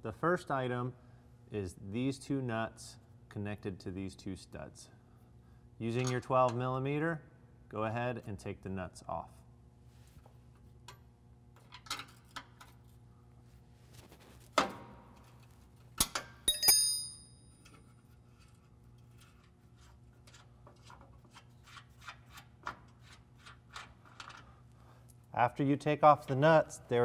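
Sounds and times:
sharp metal clack: 16.0s - 17.4s
ringing metal clink: 16.5s - 17.6s.

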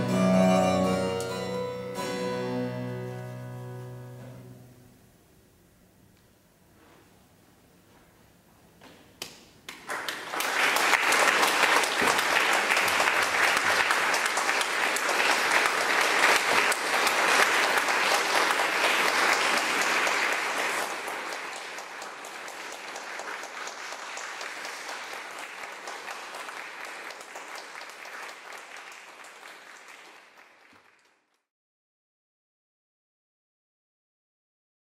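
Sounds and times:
audience applauding: 9.7s - 31.5s.

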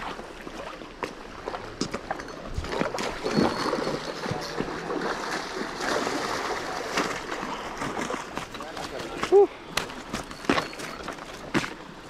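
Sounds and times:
stream rushing: 0.0s - 12.0s
fish splashing in water: 2.7s - 9.2s.

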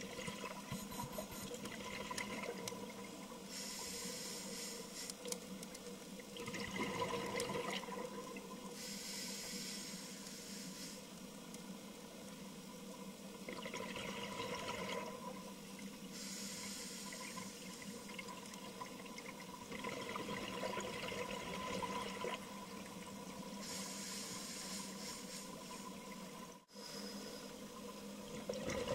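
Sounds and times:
faint steady whine: 0.0s - 28.9s
regulator inhalation hiss: 3.5s - 5.3s, 8.8s - 11.1s, 16.1s - 17.8s, 23.6s - 26.0s.

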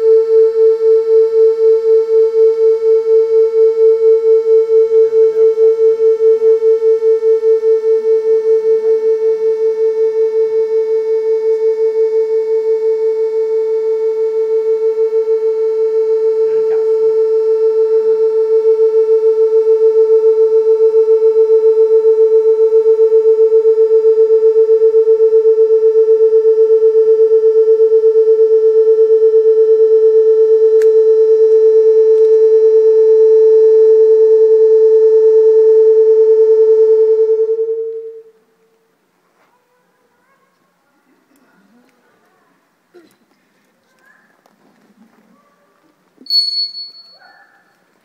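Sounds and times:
click: 30.8s - 31.0s
held electronic tone with flutter: 46.3s - 47.2s.

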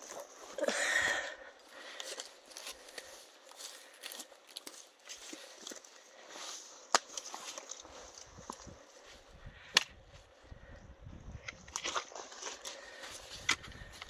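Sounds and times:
vegetation rustling: 0.0s - 10.5s
footsteps through wet ground: 1.6s - 9.3s.

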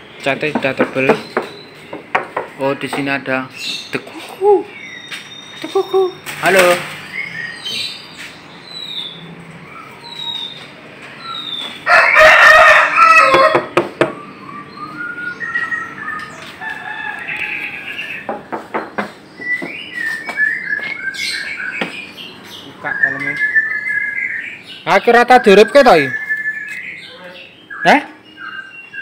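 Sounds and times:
small birds chirping: 0.0s - 29.0s
rooster crowing: 11.8s - 13.9s, 16.4s - 18.6s.

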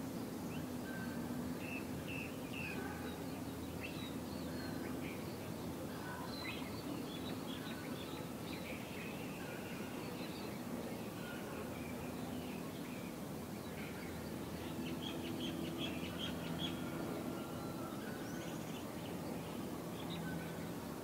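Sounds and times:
birds chirping: 0.0s - 21.0s
low background hum: 0.0s - 21.0s.

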